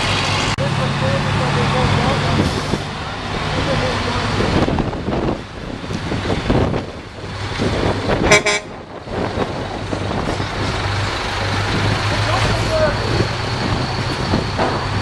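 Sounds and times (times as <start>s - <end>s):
diesel truck engine pulling away: 0.0s - 15.0s
air horn toot: 8.2s - 8.8s.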